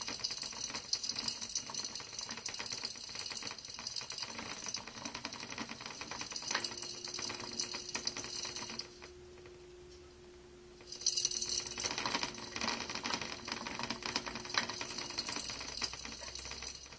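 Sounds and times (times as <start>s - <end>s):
plastic hamster wheel rattling: 0.0s - 9.1s, 10.9s - 16.9s.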